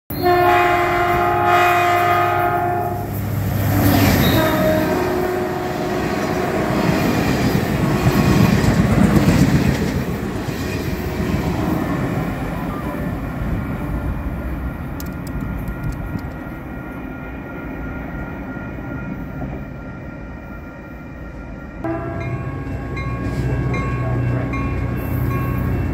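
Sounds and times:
train horn blasts: 0:00.1 - 0:03.3, 0:04.0 - 0:07.1, 0:21.8 - 0:25.9
train rushing past: 0:00.1 - 0:25.9.

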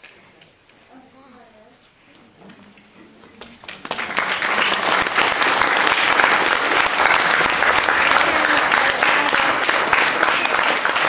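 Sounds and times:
audience applause: 0:03.6 - 0:11.0.

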